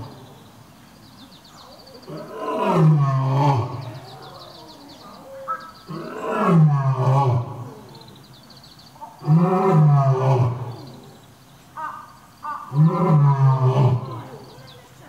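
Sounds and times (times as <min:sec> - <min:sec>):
lion roaring: 0:02.1 - 0:04.4, 0:05.9 - 0:08.0, 0:09.2 - 0:11.1, 0:12.7 - 0:14.4.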